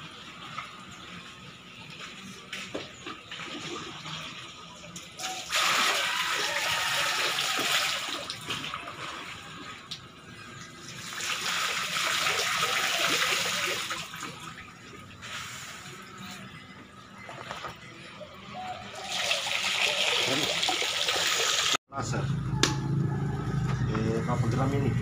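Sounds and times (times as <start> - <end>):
water splashing into pond: 5.2 - 15.7.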